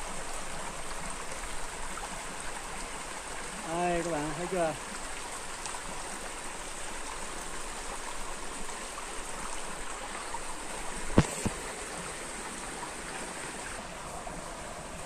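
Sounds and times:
stream babbling over rocks: 0.0s - 15.0s
sharp knocks: 11.1s - 11.6s.

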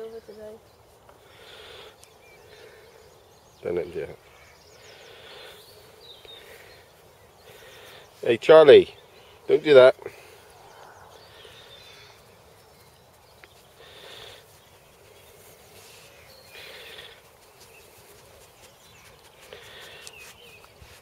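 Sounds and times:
faint birdsong: 0.0s - 21.0s
dog sniffing: 13.6s - 21.0s.

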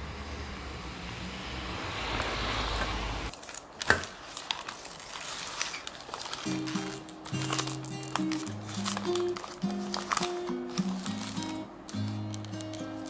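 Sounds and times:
road traffic: 0.0s - 13.0s
paper wrapping crinkling: 3.3s - 13.0s.

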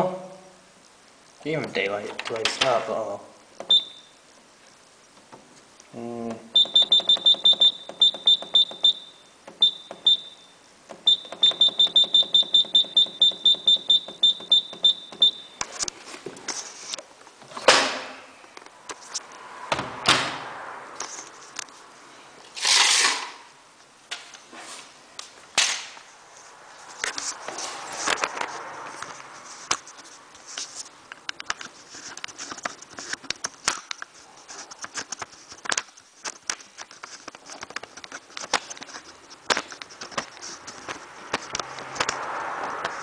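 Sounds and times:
washing machine beeping: 3.6s - 4.1s, 6.5s - 15.6s.

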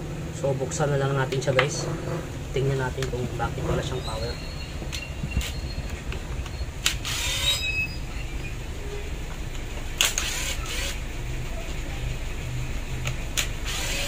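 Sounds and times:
steady low hum: 0.0s - 14.0s
cordless drill driving screws: 6.8s - 8.0s, 10.0s - 11.0s, 13.4s - 14.0s.

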